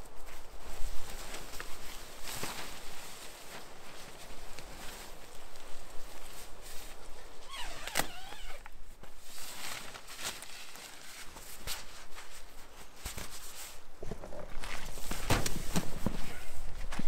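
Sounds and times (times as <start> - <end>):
tent fabric rustling: 0.0 - 17.0.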